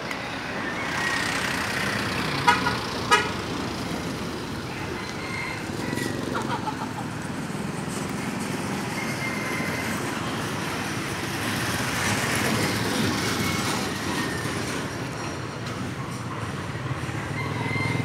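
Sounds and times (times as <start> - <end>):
road traffic noise: 0.0 - 18.0
vehicle passing by: 0.4 - 14.4.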